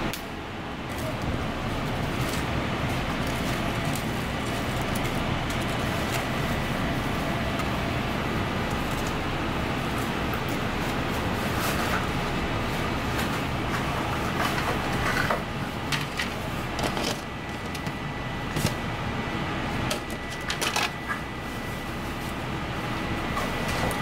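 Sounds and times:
kitchen background hum: 0:00.0 - 0:24.0
utensils clicking and clattering: 0:14.3 - 0:18.0, 0:19.9 - 0:21.2.

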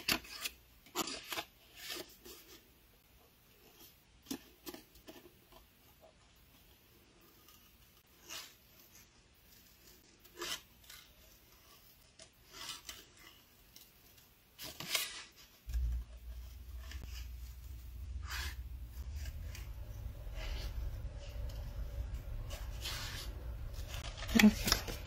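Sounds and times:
steady low rumble: 0:15.7 - 0:25.0.

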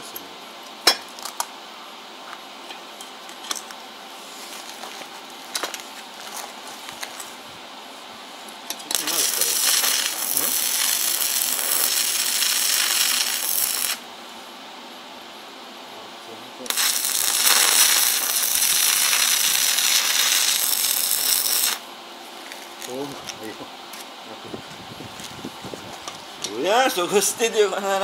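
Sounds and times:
arc welder crackling sizzle: 0:03.2 - 0:07.5, 0:08.4 - 0:14.5, 0:16.6 - 0:24.1.

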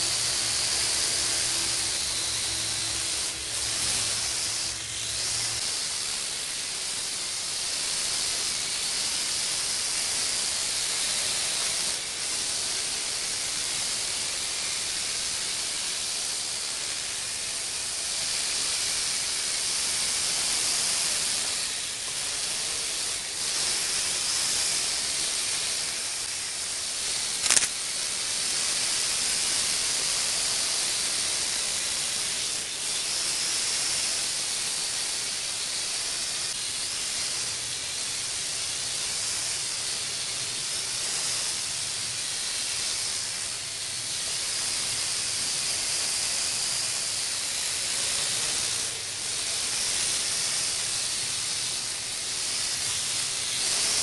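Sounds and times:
quadcopter propellers whirring: 0:00.0 - 0:54.0
sharp click: 0:27.4 - 0:27.8.

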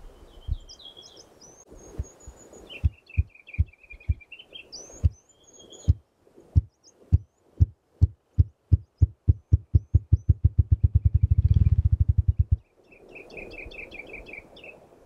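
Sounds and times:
bird singing high warbling song: 0:00.0 - 0:06.0, 0:06.6 - 0:07.5, 0:08.4 - 0:14.8
grouse wing-beat drumming: 0:02.8 - 0:04.3, 0:06.6 - 0:12.6.

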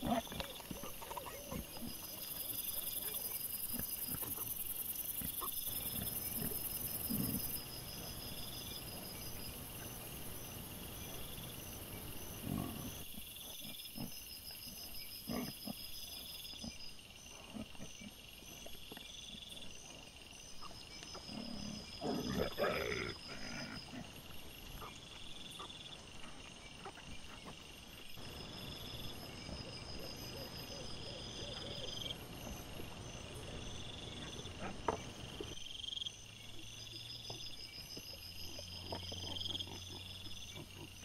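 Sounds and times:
wild boar grunting: 0:00.0 - 0:18.6, 0:21.2 - 0:25.0, 0:38.4 - 0:41.0.

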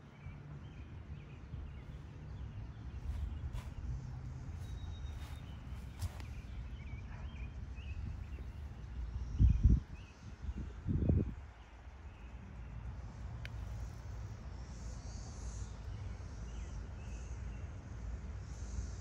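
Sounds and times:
wind rumble on microphone: 0:00.0 - 0:13.4
bird chirps: 0:04.6 - 0:08.8.

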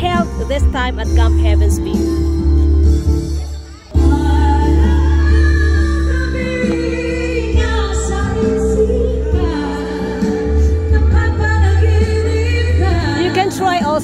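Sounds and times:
held bass notes: 0:00.0 - 0:14.0
person singing: 0:03.9 - 0:13.4.

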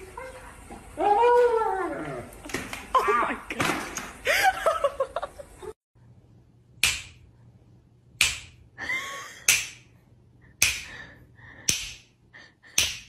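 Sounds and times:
fingers snapping: 0:08.2 - 0:08.6.

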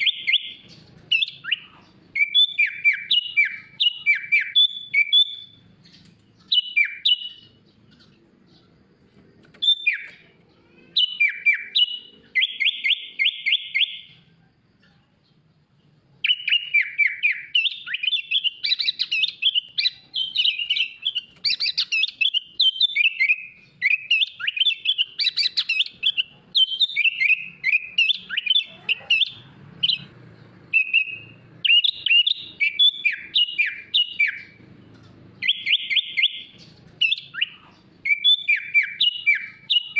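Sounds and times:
bird singing chirps and whistles: 0:00.0 - 0:14.3, 0:16.2 - 0:39.9.

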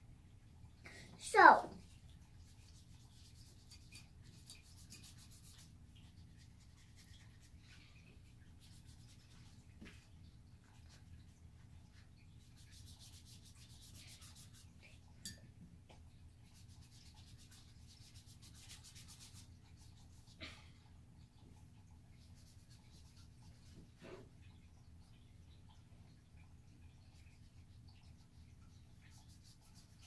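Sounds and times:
paintbrush scrubbing on paper: 0:01.3 - 0:11.1, 0:11.9 - 0:14.9, 0:16.4 - 0:20.4, 0:22.1 - 0:24.2, 0:27.0 - 0:30.0.

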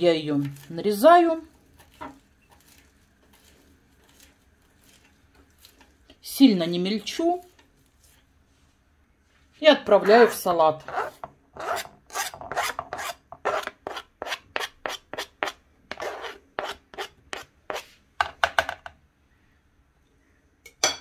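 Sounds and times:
knife scraping cutting board: 0:01.5 - 0:06.0, 0:09.9 - 0:18.0.

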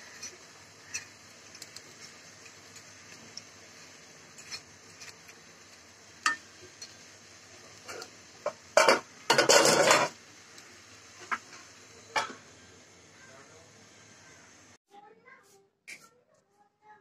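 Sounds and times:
metal spatula scraping pan: 0:04.3 - 0:05.2, 0:07.9 - 0:10.2
metal lid clanking on pan: 0:07.9 - 0:10.2, 0:12.1 - 0:12.4.

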